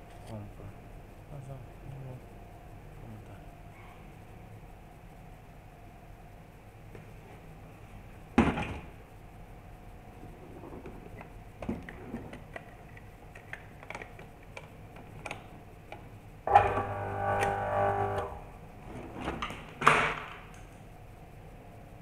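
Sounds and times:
water pump motor humming: 0:16.5 - 0:18.4.

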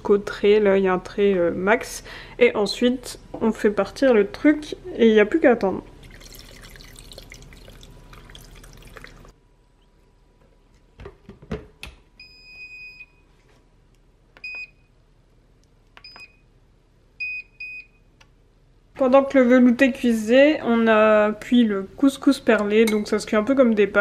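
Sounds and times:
water pouring into steel jug: 0:06.0 - 0:09.4.

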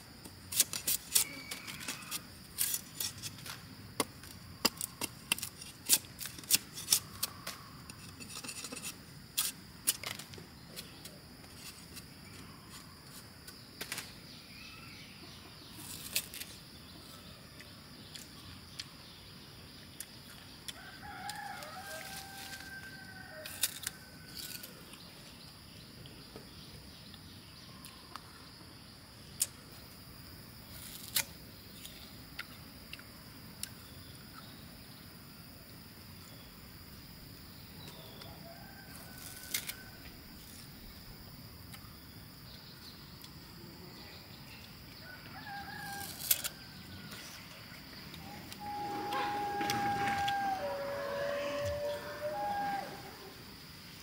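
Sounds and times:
knife chopping cane rind: 0:00.5 - 0:10.3, 0:39.2 - 0:39.8, 0:45.8 - 0:46.6
crunch of cane bitten: 0:20.7 - 0:25.0, 0:30.7 - 0:33.0, 0:38.9 - 0:40.7, 0:45.7 - 0:47.2
rooster crowing: 0:20.8 - 0:24.4, 0:45.0 - 0:46.8, 0:48.2 - 0:53.4
high insect buzz: 0:45.0 - 0:54.0.

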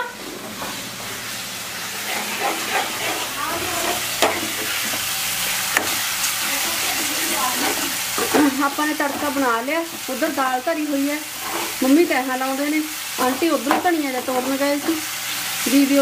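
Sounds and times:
food sizzling in a pan: 0:00.0 - 0:16.0
ladle stirring and scraping: 0:01.8 - 0:09.4, 0:11.3 - 0:11.9.

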